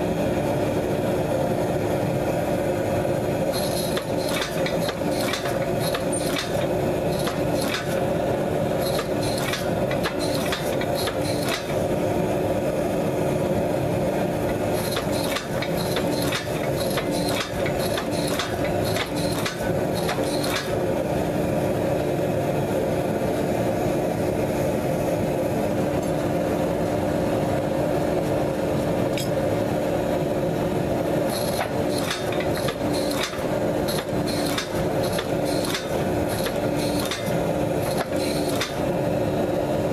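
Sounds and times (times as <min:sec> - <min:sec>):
hydraulic press humming: 0:03.5 - 0:12.1, 0:14.3 - 0:21.2, 0:31.2 - 0:39.7.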